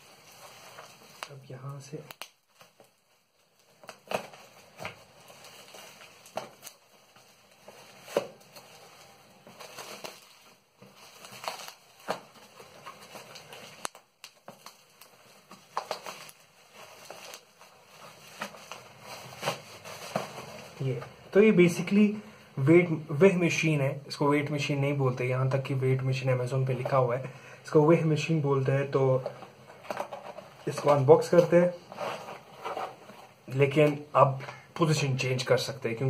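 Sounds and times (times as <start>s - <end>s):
bubble wrap rustling and crackling: 0.0s - 22.2s, 28.0s - 36.0s.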